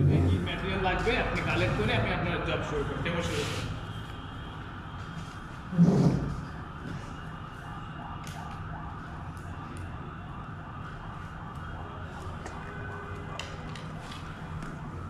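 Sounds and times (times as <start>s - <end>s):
siren rising sweeps: 4.8s - 13.3s.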